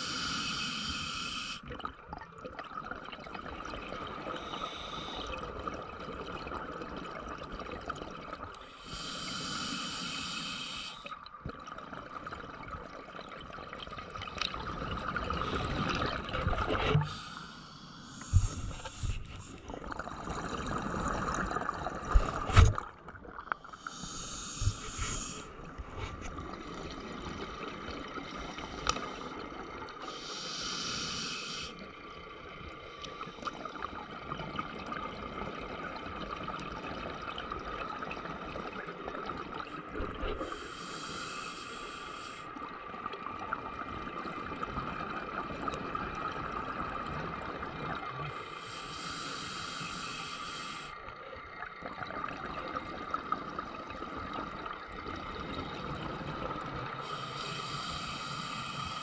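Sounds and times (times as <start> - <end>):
diver breathing bubbles: 0.0 - 1.6, 4.1 - 5.7, 8.6 - 11.2, 14.7 - 27.1, 30.0 - 31.8, 39.8 - 42.6, 47.9 - 51.0, 56.4 - 59.0
underwater hiss and hum: 0.0 - 1.8, 3.6 - 6.2, 7.9 - 12.7, 13.9 - 35.6, 37.3 - 59.0.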